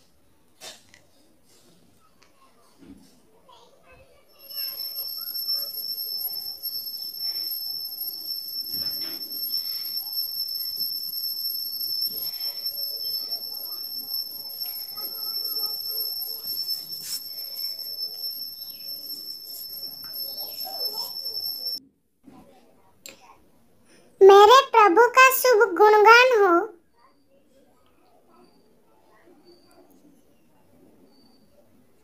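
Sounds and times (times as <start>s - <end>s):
faint background sounds: 0.0s - 32.0s
steady high-pitched tone: 4.4s - 21.8s.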